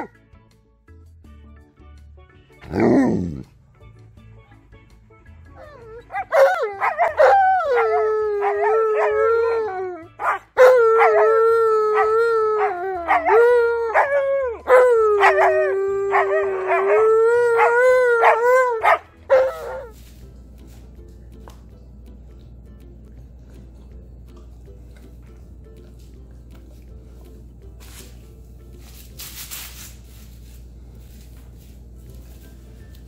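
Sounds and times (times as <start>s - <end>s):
dogs howling: 5.6s - 19.9s.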